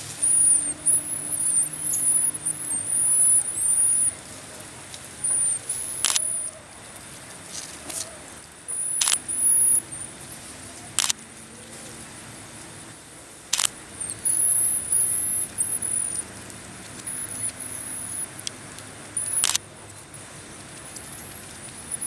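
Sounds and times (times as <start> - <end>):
marmosets whistling: 0.1 - 4.2, 5.2 - 6.6, 8.7 - 9.9, 14.1 - 16.2, 17.0 - 18.3, 19.2 - 19.6
sharp clicks: 4.9 - 6.5, 8.7 - 9.8, 11.0 - 11.2, 13.5 - 20.0.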